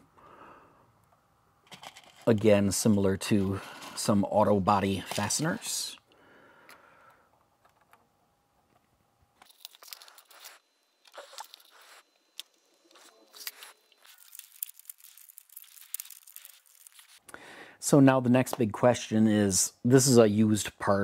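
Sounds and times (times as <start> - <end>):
plastic crinkling and clicking: 13.4 - 17.2.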